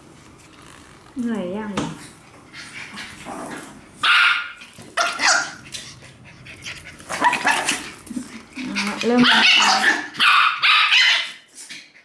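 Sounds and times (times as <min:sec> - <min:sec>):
dogs barking: 0:04.0 - 0:05.7, 0:08.7 - 0:11.5.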